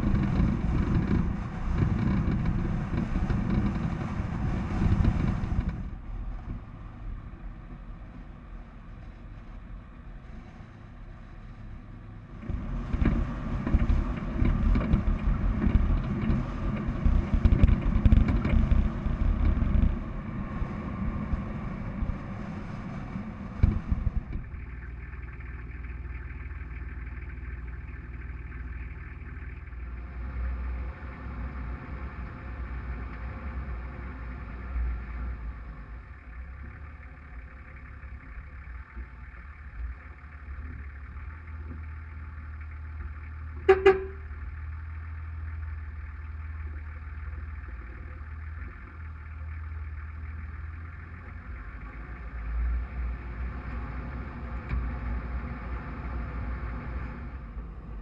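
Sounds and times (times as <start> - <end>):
diesel truck engine driving: 0.0 - 58.0
car horn toot: 43.6 - 44.3.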